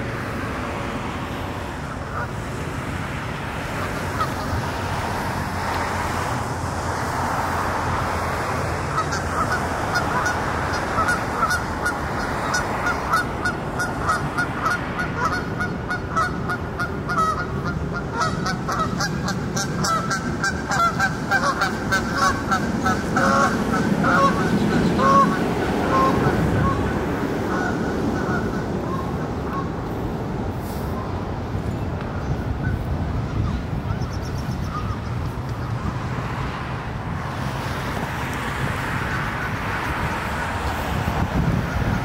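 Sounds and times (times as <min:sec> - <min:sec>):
outdoor rush: 0:00.0 - 0:42.0
geese honking: 0:03.7 - 0:04.6, 0:08.9 - 0:29.8, 0:32.6 - 0:35.2.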